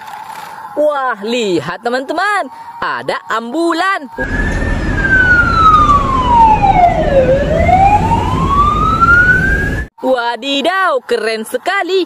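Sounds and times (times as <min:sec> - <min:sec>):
ambulance siren wailing: 0:04.2 - 0:09.9
road noise: 0:04.2 - 0:09.9.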